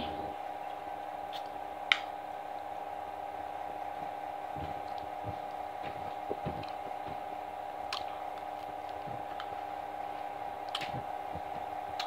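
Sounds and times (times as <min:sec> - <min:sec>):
steady hum: 0:00.0 - 0:12.0
person chewing food: 0:07.8 - 0:09.7, 0:10.6 - 0:12.0.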